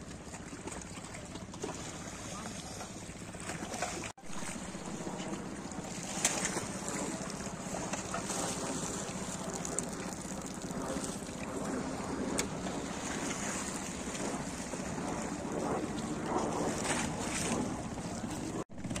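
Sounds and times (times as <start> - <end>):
wind on microphone: 3.9 - 18.6.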